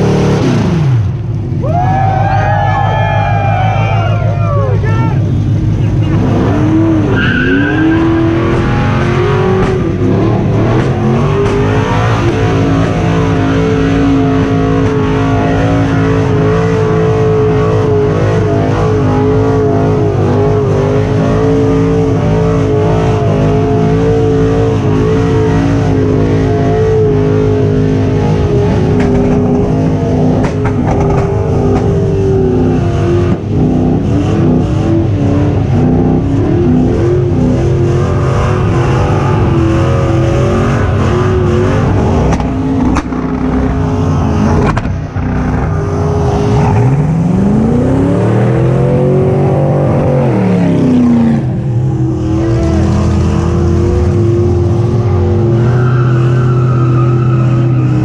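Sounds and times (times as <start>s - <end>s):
car engine at high revs: 0.0s - 2.3s, 3.1s - 58.0s.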